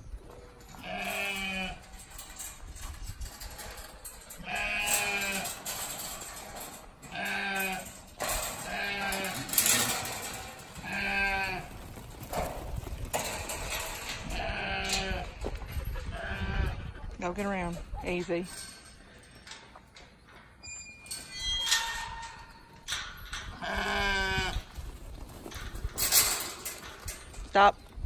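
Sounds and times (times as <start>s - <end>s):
lambs bleating: 0.8s - 1.8s, 4.4s - 5.5s, 8.7s - 9.6s, 10.8s - 11.7s.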